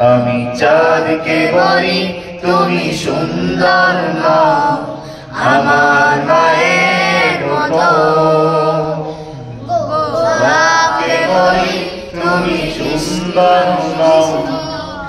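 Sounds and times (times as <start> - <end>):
man singing into microphone: 0.0 - 9.1
boys singing along: 0.0 - 15.0.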